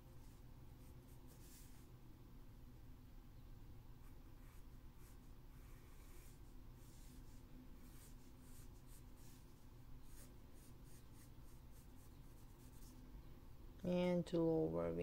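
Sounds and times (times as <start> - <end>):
pencil scratching on paper: 4.0 - 12.9.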